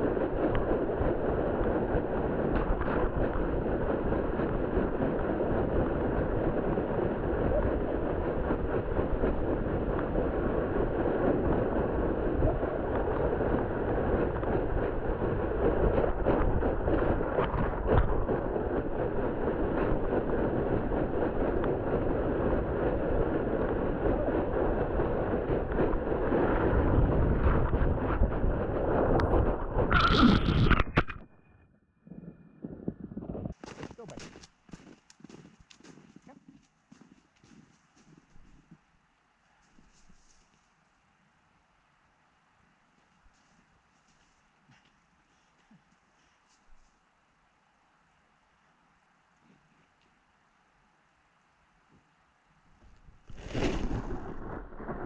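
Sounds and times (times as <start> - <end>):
plastic sled scraping over snow: 0.0 - 31.1, 52.8 - 55.0.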